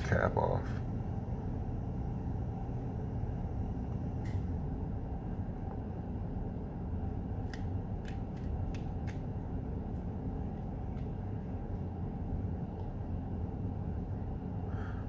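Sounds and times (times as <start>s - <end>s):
low room rumble: 0.0s - 15.0s
pepper pod snapping and tearing: 7.4s - 9.4s.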